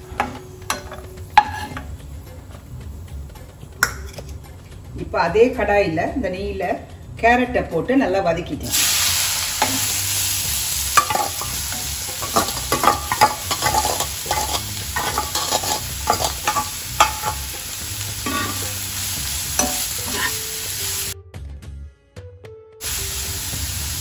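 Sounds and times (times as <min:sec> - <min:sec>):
steel ladle scraping and clinking: 0:00.2 - 0:01.9, 0:10.8 - 0:20.9
carrots sizzling in fat: 0:08.7 - 0:21.2, 0:22.8 - 0:24.0.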